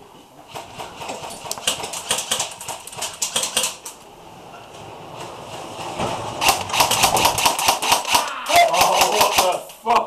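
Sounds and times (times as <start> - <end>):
airsoft guns firing: 0.5 - 3.9, 6.4 - 9.6.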